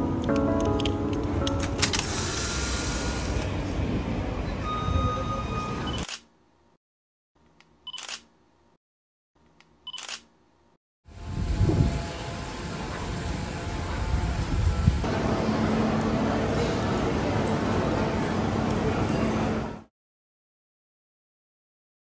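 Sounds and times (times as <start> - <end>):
steady noisy background: 0.0 - 6.1, 11.1 - 19.9
camera shutter clicks: 7.9 - 8.3, 9.9 - 10.3.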